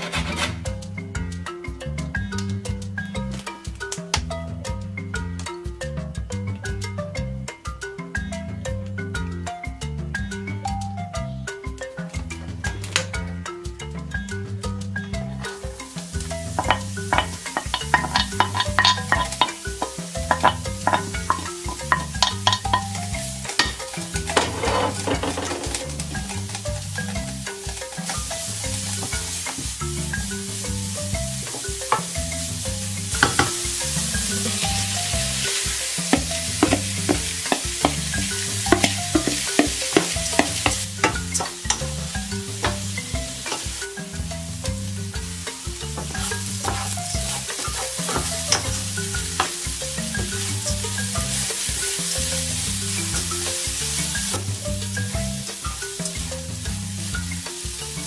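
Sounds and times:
wooden spoon scraping a pan: 0:00.0 - 0:00.8, 0:16.5 - 0:29.6, 0:45.9 - 0:49.6
food sizzling in a pan: 0:15.3 - 0:58.0.

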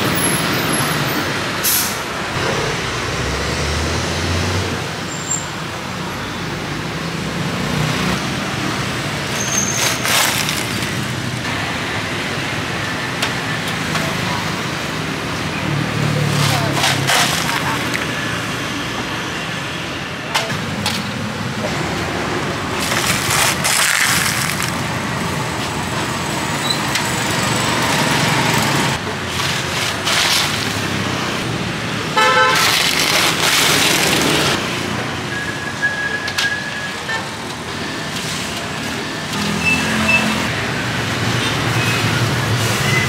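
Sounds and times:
busy street traffic: 0:00.0 - 0:43.0
vehicle horn toot: 0:32.2 - 0:32.8.

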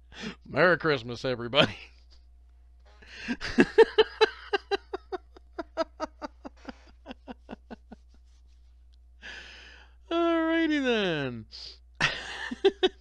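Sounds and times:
person laughing: 0:03.1 - 0:08.4, 0:12.0 - 0:13.0.

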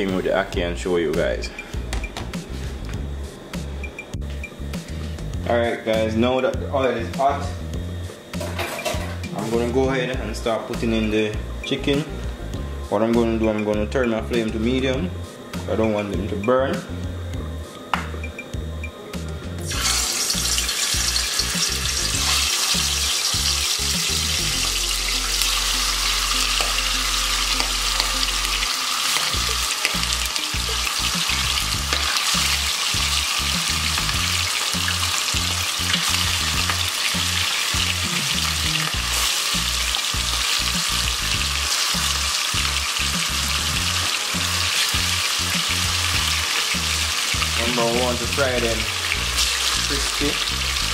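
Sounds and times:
chicken deep-frying in oil: 0:19.7 - 0:50.9.

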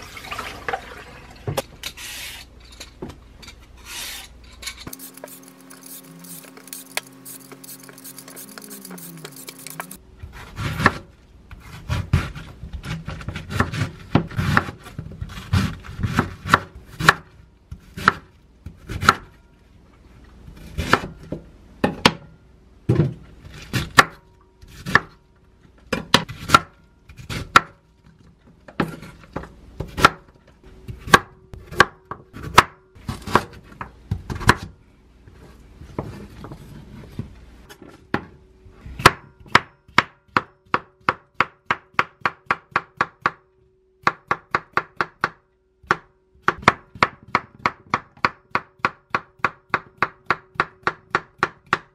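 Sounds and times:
vegetable peeler scraping radish: 0:03.8 - 0:11.0
knife chopping on wooden board: 0:11.8 - 0:17.3.

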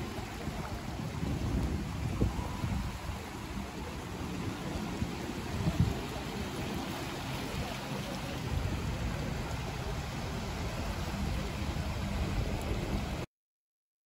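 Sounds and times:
waves washing against rocks: 0:00.0 - 0:13.2
wind buffeting microphone: 0:00.0 - 0:13.2.

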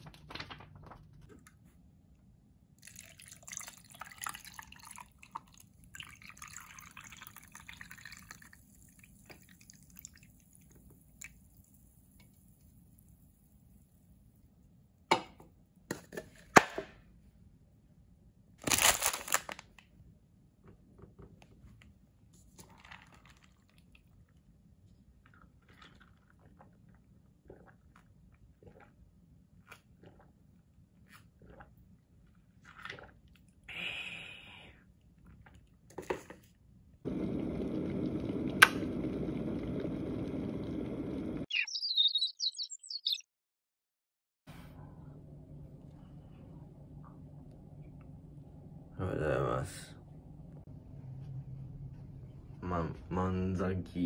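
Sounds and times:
carbonated drink hissing and fizzing: 0:37.1 - 0:41.5.

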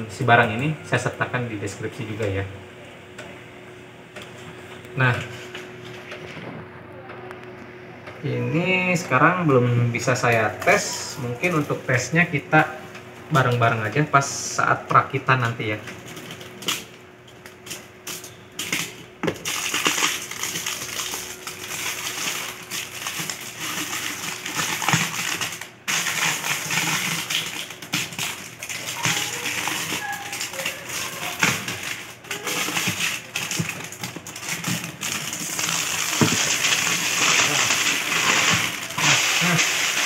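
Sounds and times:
plastic film crinkling: 0:17.5 - 0:40.0.

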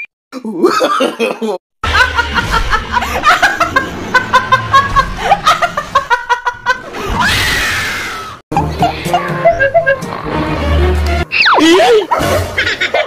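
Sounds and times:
rapid pulsing laughter: 0:00.6 - 0:07.2, 0:08.5 - 0:10.3
loud scream: 0:07.0 - 0:08.4.

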